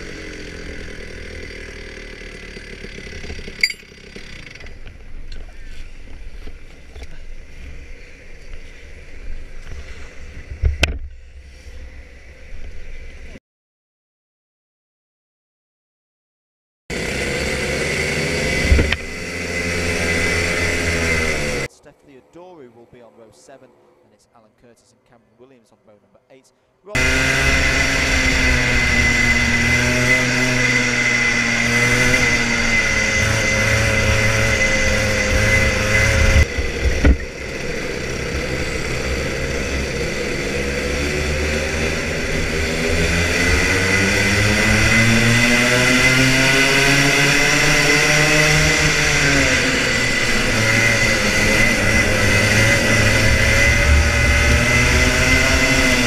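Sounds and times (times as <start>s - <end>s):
kart engine revving: 0.0s - 13.4s, 16.9s - 21.7s, 26.9s - 56.0s
steady high whine: 27.0s - 56.0s.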